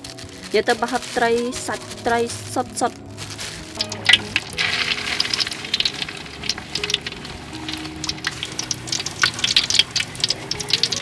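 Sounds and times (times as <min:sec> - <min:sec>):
patty deep-frying in hot oil: 0:02.3 - 0:11.0.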